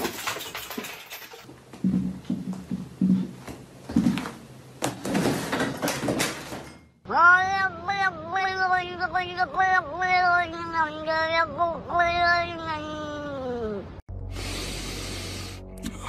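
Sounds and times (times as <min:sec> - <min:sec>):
cat meowing: 0:07.1 - 0:14.0.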